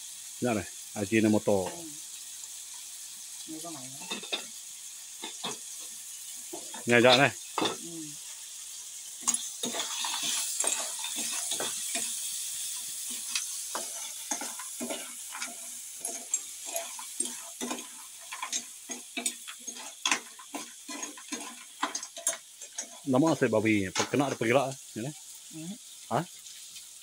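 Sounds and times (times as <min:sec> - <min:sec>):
snails sizzling in a frying pan: 0:00.0 - 0:27.0
metal spoon scraping a pan: 0:04.0 - 0:07.8, 0:09.1 - 0:23.4, 0:24.0 - 0:24.6.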